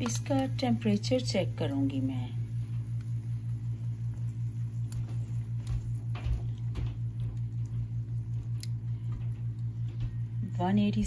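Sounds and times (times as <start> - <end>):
faint clicks of thermometer probe: 0.0 - 0.6, 4.1 - 10.2
low pulsing electrical hum: 0.0 - 11.0.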